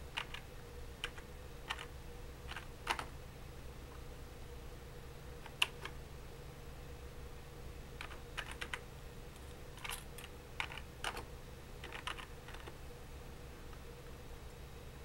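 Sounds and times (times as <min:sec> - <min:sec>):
faint steady hum: 0:00.0 - 0:15.0
keyboard typing clicks: 0:00.1 - 0:00.4, 0:01.0 - 0:01.9, 0:02.5 - 0:03.1, 0:08.0 - 0:08.8, 0:09.8 - 0:12.8.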